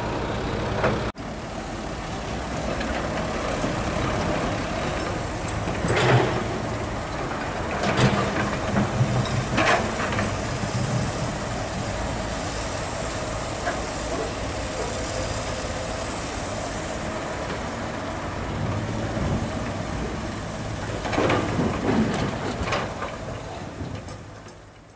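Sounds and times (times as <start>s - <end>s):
diesel engines running: 0.0s - 24.9s.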